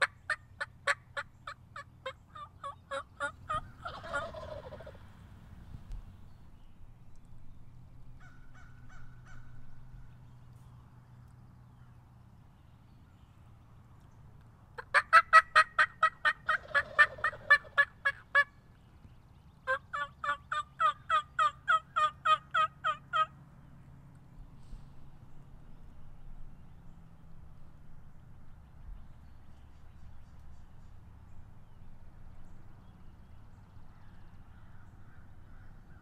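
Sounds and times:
turkey yelping: 0:00.0 - 0:05.1, 0:08.2 - 0:09.6, 0:14.8 - 0:18.6, 0:19.7 - 0:23.3
faint turkey clucks: 0:00.0 - 0:05.2, 0:08.2 - 0:12.0, 0:14.8 - 0:23.4.

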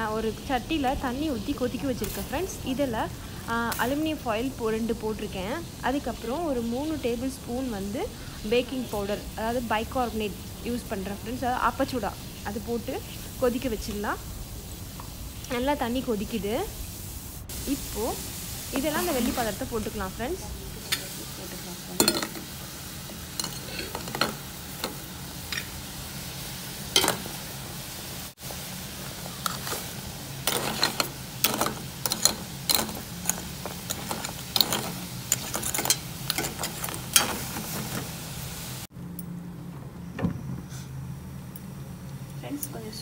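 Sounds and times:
water boiling with fizzing hiss: 0:00.0 - 0:38.9.

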